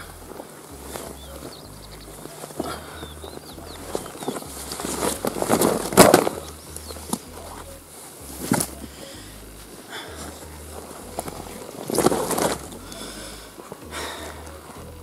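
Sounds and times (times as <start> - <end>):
wet net mesh rustling: 3.9 - 6.5.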